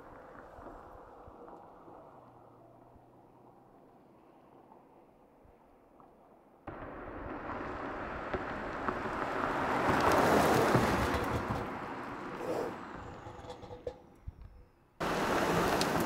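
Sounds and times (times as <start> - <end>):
car passing by: 6.7 - 13.8.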